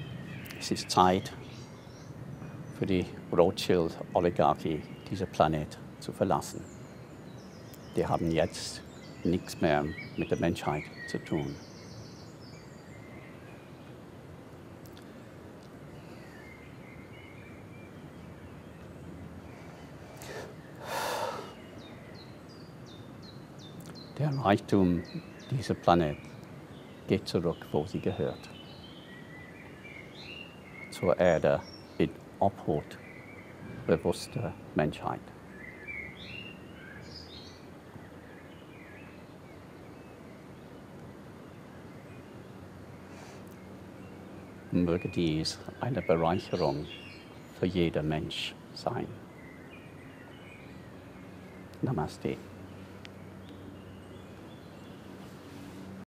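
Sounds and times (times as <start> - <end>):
background noise: 0.0 - 56.0
faint bird chirps: 0.0 - 56.0
faint low hum and hiss: 0.0 - 56.0
man breathing through the nose: 19.5 - 21.7, 43.1 - 43.5.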